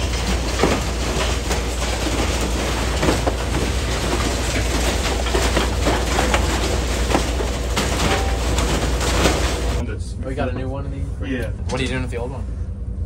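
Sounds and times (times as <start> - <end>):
car shredder rumbling: 0.0 - 9.8
metal clanking and banging: 0.0 - 9.8.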